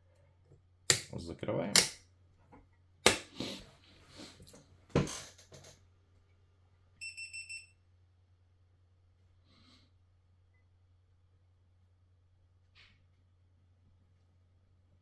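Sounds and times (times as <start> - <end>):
short electronic beeps: 7.0 - 7.7.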